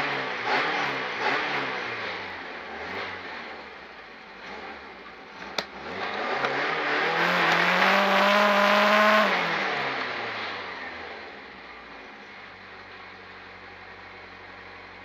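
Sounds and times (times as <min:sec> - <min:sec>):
racing car engine revving: 0:00.0 - 0:03.7, 0:04.3 - 0:11.1.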